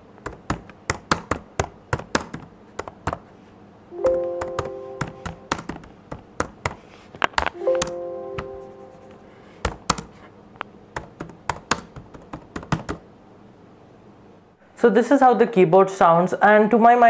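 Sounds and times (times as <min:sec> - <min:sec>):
laptop keyboard typing: 0:00.2 - 0:03.3, 0:04.1 - 0:10.2, 0:11.0 - 0:13.0
multi-note chime: 0:04.0 - 0:05.6, 0:07.6 - 0:09.4.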